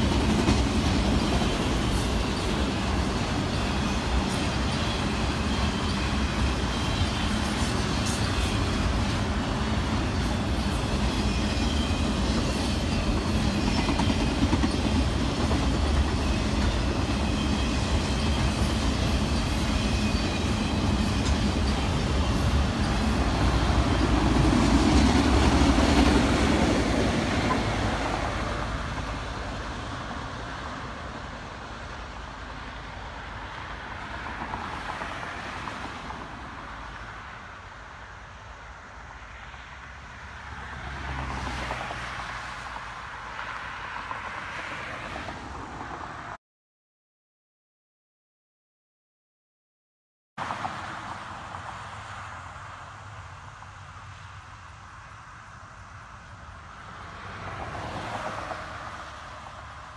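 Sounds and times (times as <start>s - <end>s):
freight train wheels rumbling: 0.0s - 37.5s
car passing: 39.3s - 46.4s, 50.4s - 59.9s.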